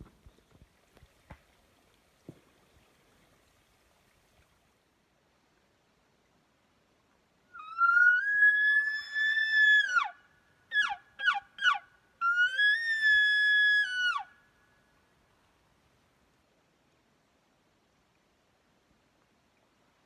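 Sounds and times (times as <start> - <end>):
elk bugle call whistle: 7.5 - 14.3.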